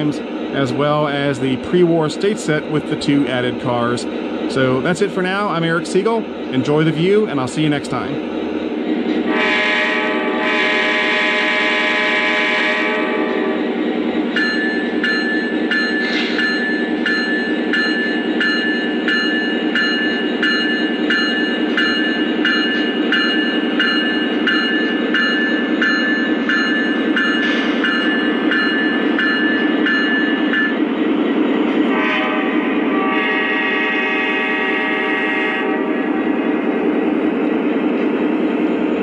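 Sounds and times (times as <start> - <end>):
locomotive bell ringing: 14.3 - 30.9.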